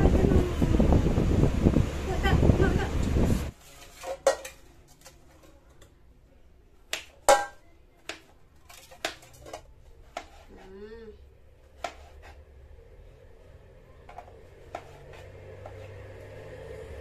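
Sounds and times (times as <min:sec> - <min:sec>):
knife chopping on wooden board: 0:10.0 - 0:10.5, 0:11.8 - 0:12.4, 0:14.1 - 0:16.0.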